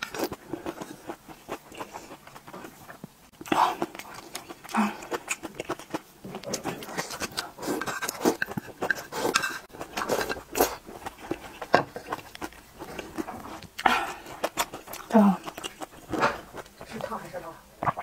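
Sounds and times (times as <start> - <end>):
wet chewing and lip smacks: 0.0 - 17.1
slurping soup from a spoon: 6.8 - 13.6.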